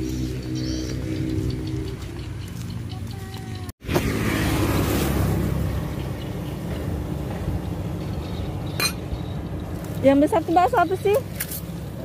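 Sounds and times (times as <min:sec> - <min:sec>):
low outdoor rumble: 0:00.0 - 0:03.7.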